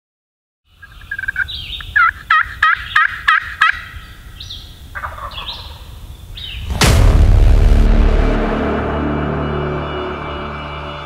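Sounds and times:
wild turkey calling: 0.7s - 6.6s
low rumble: 6.4s - 10.1s
loud hit: 6.6s - 10.2s.

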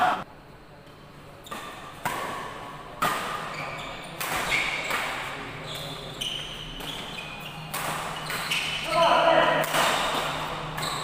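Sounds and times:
rackets striking shuttlecock: 6.8s - 8.7s, 9.6s - 11.0s.

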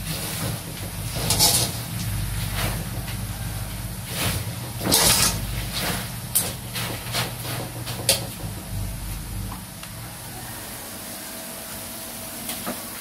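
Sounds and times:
strainer scraping against wok: 0.0s - 9.4s
hot oil hissing: 0.0s - 13.0s.

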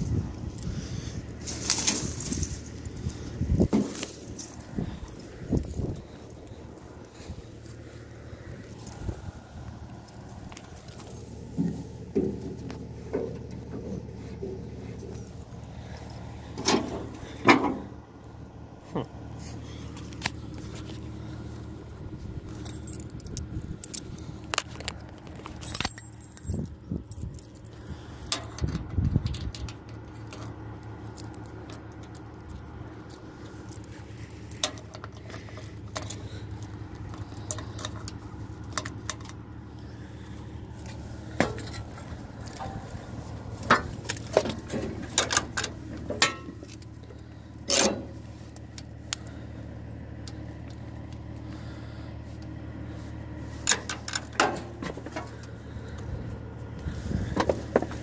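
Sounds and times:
tractor engine rumbling: 0.0s - 58.0s
keys jangling against dashboard: 22.4s - 39.9s, 40.7s - 49.4s, 53.6s - 56.1s.

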